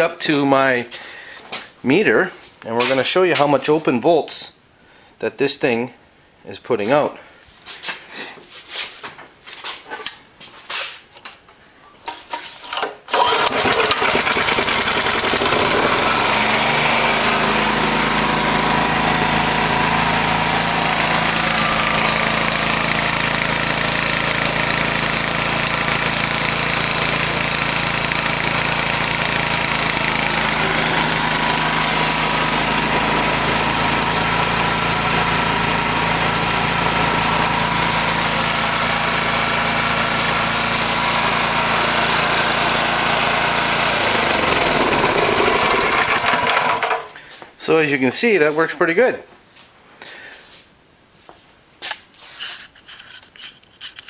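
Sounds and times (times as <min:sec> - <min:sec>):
engine starting and running: 0:12.8 - 0:47.2.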